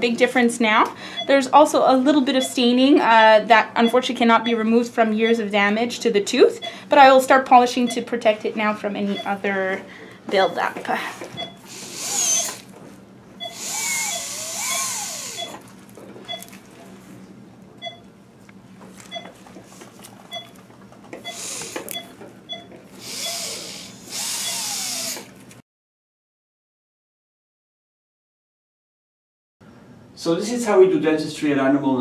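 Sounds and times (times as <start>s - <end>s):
dental handpiece whining: 11.4s - 12.7s, 13.4s - 15.8s, 21.2s - 25.4s.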